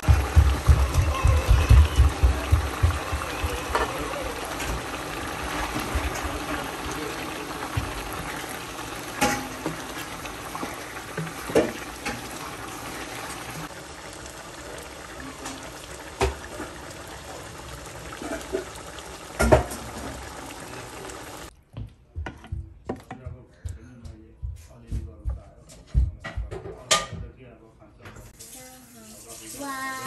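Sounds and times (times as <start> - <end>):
curry simmering in a pan: 0.0 - 21.5.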